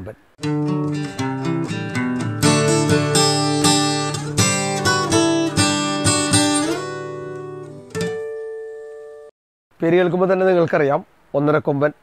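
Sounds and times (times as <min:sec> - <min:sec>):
guitar chords strummed: 0:00.4 - 0:09.3.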